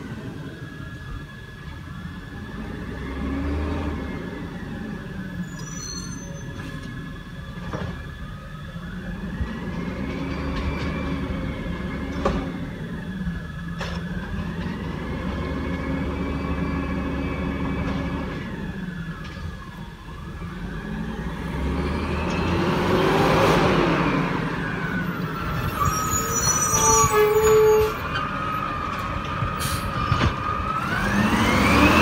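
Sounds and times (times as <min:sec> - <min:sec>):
truck engine revving: 0:20.4 - 0:26.0, 0:28.2 - 0:32.0.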